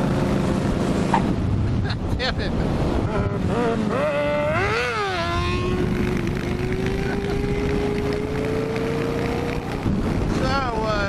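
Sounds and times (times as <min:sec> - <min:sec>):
wind rushing over microphone: 0:00.0 - 0:11.0
motorcycle engine revving: 0:02.8 - 0:11.0.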